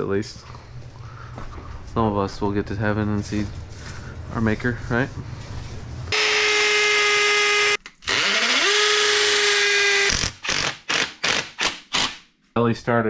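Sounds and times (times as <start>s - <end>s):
power drill motor whining: 6.1s - 11.0s.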